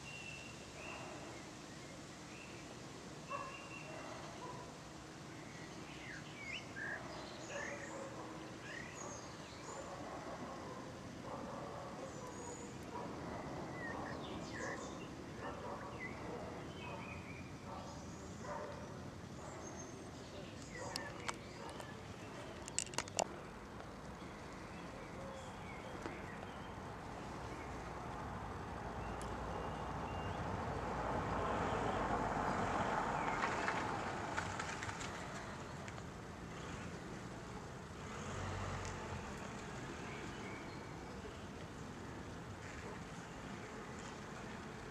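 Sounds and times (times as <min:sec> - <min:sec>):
outdoor background noise: 0:00.0 - 0:44.9
vehicle passing: 0:28.2 - 0:35.5, 0:36.5 - 0:40.3.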